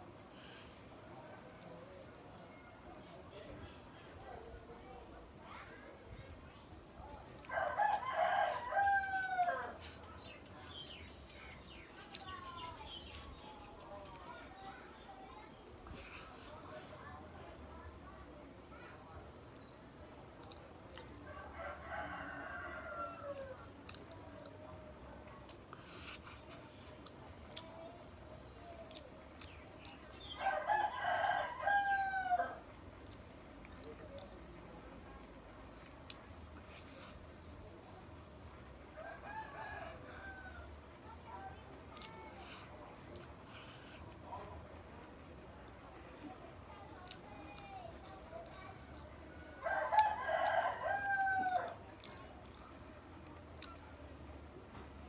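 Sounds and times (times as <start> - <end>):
rooster crowing: 7.5 - 9.8, 30.4 - 32.6, 49.6 - 51.8.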